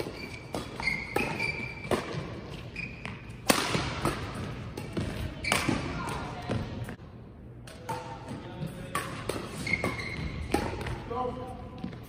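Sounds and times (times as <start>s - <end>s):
racket striking shuttlecock: 0.0s - 6.4s, 8.9s - 11.0s
shoes squeaking on court: 0.0s - 7.0s, 8.6s - 12.0s.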